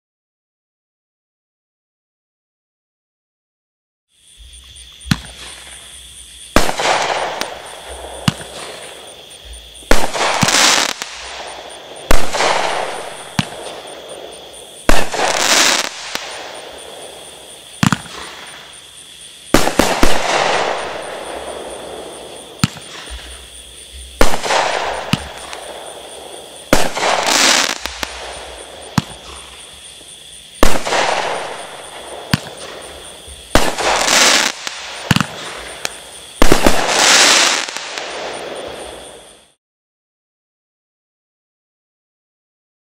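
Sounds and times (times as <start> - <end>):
firework shots banging: 5.0 - 5.8, 6.5 - 18.7, 19.5 - 29.7, 30.6 - 38.9.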